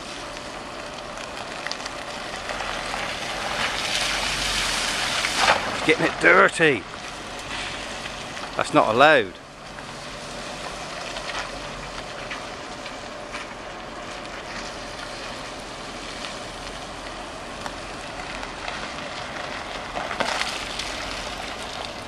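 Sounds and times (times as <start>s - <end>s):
tyres hissing on wet road: 0.0s - 22.0s
van splashing through water: 2.0s - 9.2s.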